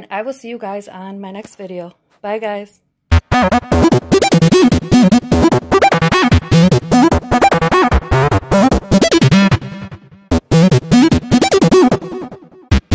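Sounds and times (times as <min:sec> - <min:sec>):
choppy music: 0:03.1 - 0:12.9.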